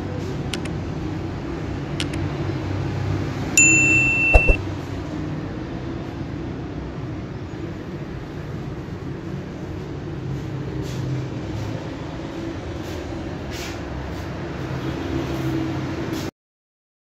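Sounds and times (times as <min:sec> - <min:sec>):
electronic beep: 0:03.6 - 0:04.6
sharp knocks: 0:04.1 - 0:04.6.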